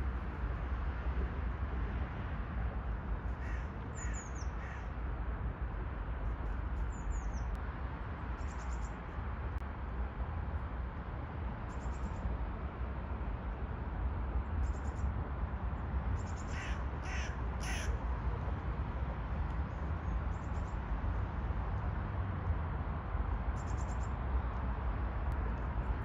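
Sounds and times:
crow cawing: 3.4s - 3.7s, 16.5s - 17.9s.

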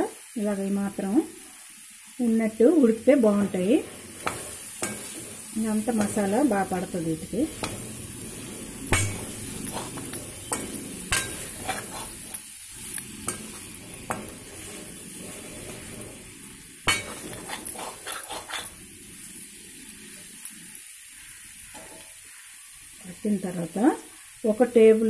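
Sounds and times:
food sizzling in a pan: 0.0s - 25.0s
metal spatula scraping pan: 2.9s - 19.3s
spatula clinking against pan: 8.9s - 14.4s, 16.9s - 18.8s.

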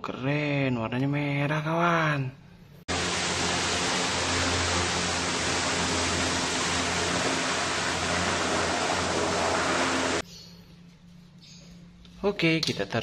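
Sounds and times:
hovercraft engine drone: 2.9s - 10.2s.

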